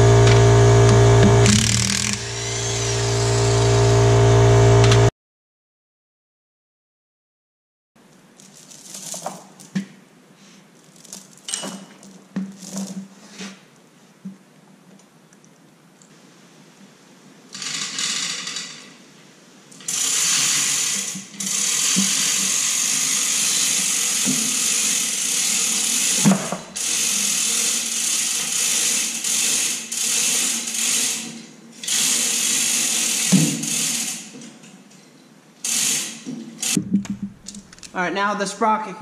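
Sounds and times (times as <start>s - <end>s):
power tool running: 0.0s - 5.1s, 19.9s - 28.4s, 35.7s - 36.8s.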